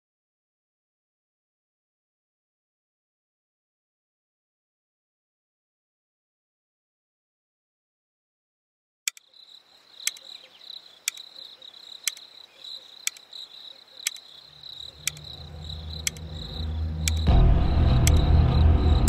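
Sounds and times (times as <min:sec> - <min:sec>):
sharp ticks: 0:09.1 - 0:09.3, 0:10.0 - 0:12.4, 0:13.0 - 0:19.0
crickets trilling: 0:09.1 - 0:19.0
low hum: 0:14.6 - 0:19.0.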